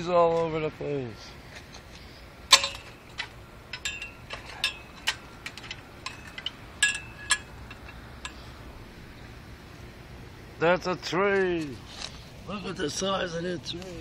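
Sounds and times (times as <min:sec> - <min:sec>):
sharp clicks and clinks: 0:02.5 - 0:08.4.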